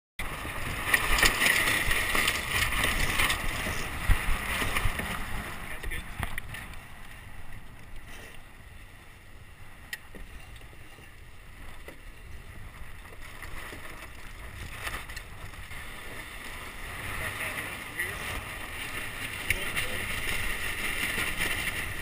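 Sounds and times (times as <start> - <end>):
wind rumbling on microphone: 0.2 - 22.0
clicks and knocks of lines: 5.8 - 6.8.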